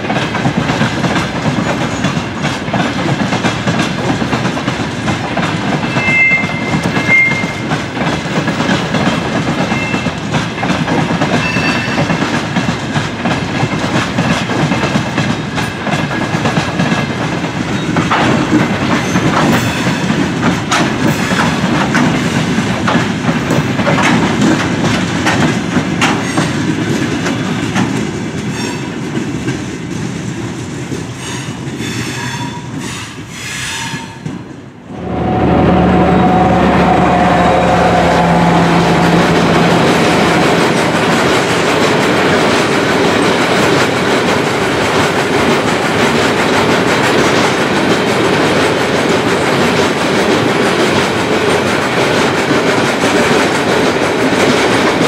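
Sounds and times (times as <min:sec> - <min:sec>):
wheels clattering over rail joints: 0:00.0 - 0:31.1
freight train rumbling past: 0:00.0 - 0:55.0.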